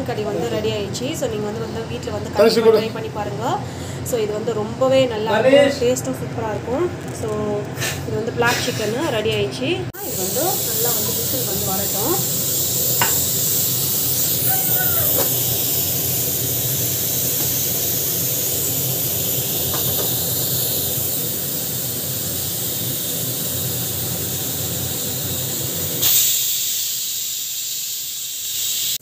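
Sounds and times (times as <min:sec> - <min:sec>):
pressure cooker steam hissing: 0:07.8 - 0:09.2, 0:09.9 - 0:29.0.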